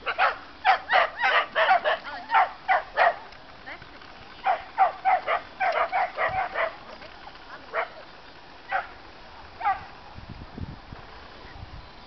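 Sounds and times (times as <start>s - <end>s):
dog barking: 0.0s - 3.2s, 4.4s - 6.8s, 8.7s - 8.9s, 9.6s - 9.9s.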